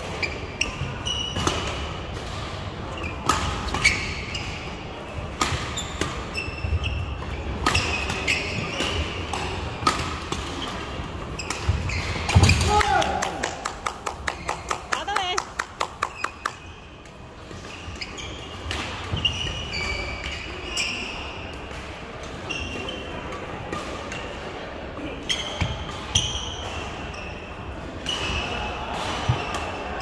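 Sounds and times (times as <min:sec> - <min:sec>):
shoes squeaking on court: 0:00.0 - 0:12.6, 0:16.0 - 0:21.7, 0:22.4 - 0:23.3, 0:25.0 - 0:27.5
racket hitting shuttlecock: 0:05.3 - 0:07.0, 0:07.6 - 0:14.7.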